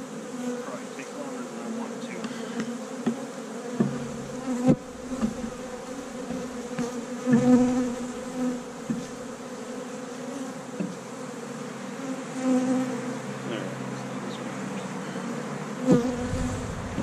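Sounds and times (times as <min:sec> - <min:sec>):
honeybees buzzing: 0:00.0 - 0:17.0
hive equipment knocking: 0:02.6 - 0:08.2.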